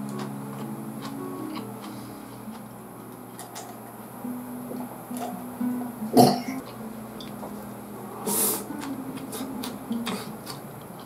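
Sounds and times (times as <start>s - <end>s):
breathy exhale: 1.9s - 2.4s, 8.2s - 8.7s
man's throaty sound: 6.1s - 6.6s.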